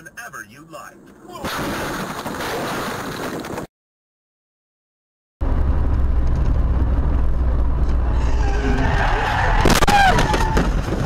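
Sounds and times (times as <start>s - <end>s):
car road and engine rumble: 5.4s - 11.0s
tyres skidding and squealing: 7.7s - 11.0s.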